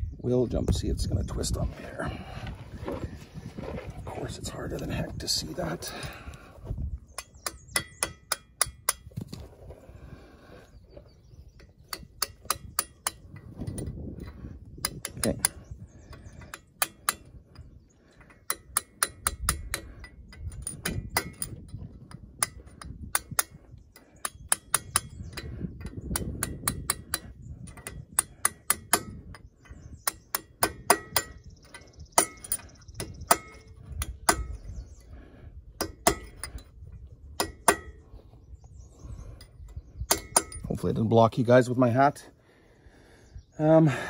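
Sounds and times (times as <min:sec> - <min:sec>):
hammer tapping metal: 0:07.2 - 0:09.1, 0:24.2 - 0:29.2, 0:30.0 - 0:31.4, 0:37.4 - 0:38.0.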